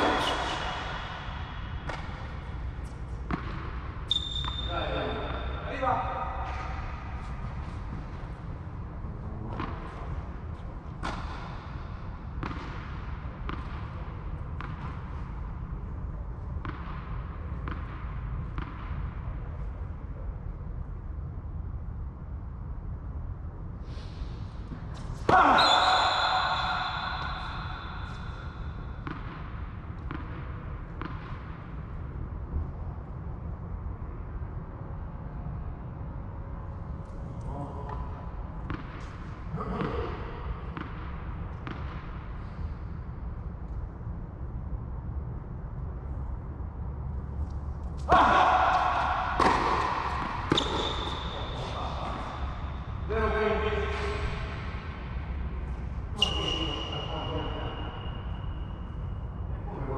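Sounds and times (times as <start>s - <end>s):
steady low rumble: 0.0s - 4.1s, 4.8s - 25.3s, 26.8s - 56.2s
tennis ball impacts: 0.0s - 4.6s, 11.0s - 15.2s, 16.5s - 19.0s, 25.0s - 31.6s, 47.9s - 52.9s.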